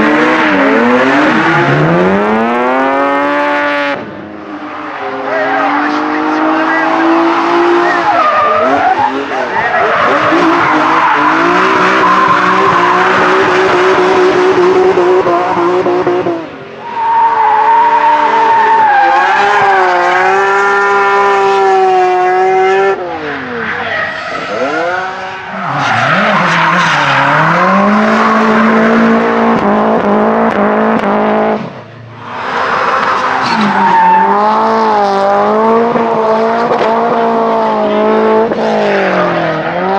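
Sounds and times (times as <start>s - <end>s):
engines revving high: 0.0s - 39.9s.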